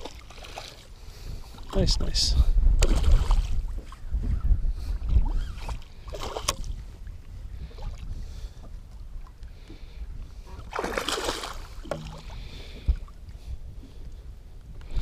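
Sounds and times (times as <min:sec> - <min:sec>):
fish splashing in water: 0:10.7 - 0:12.4.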